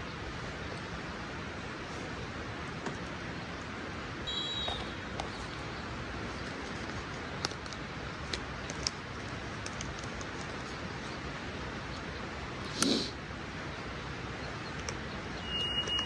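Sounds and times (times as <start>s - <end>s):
background hiss: 10.7s - 15.9s.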